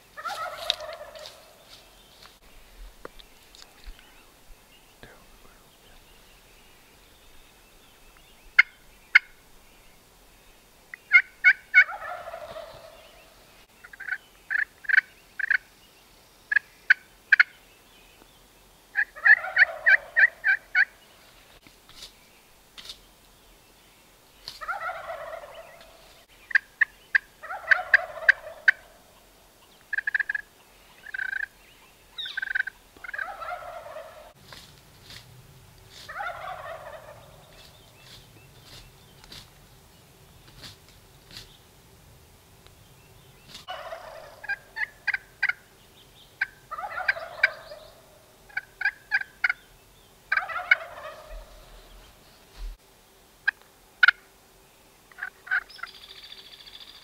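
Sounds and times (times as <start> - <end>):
turkeys gobbling: 0.1 - 1.8, 8.6 - 9.4, 11.1 - 15.6, 18.9 - 21.0, 24.6 - 31.5, 32.2 - 34.4, 35.9 - 39.4, 43.5 - 45.7, 46.4 - 49.6, 50.3 - 52.1, 53.4 - 54.2, 55.1 - 56.0
short sharp turkey calls: 0.2 - 1.8, 8.5 - 9.4, 11.0 - 13.2, 13.8 - 15.6, 18.9 - 21.0, 24.4 - 31.5, 32.2 - 35.2, 35.9 - 39.5, 43.5 - 45.6, 46.4 - 49.6, 50.3 - 52.0, 53.4 - 54.3, 55.1 - 57.0.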